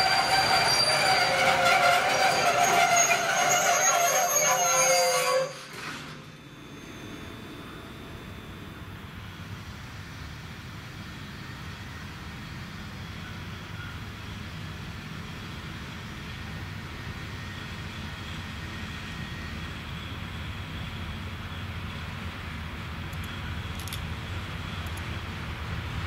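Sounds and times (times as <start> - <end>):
electric locomotive rumble: 0.0 - 26.0
faint steady whine: 6.2 - 25.6.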